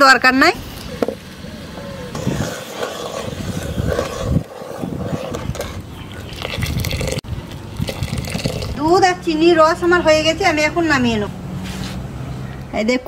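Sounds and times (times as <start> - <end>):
ladle stirring milk in a pot: 2.2 - 7.2.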